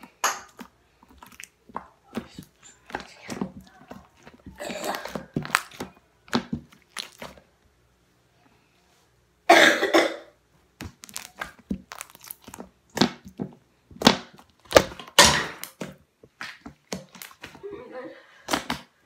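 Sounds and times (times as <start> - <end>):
slime squelching and popping: 0.0 - 7.5, 10.7 - 17.6.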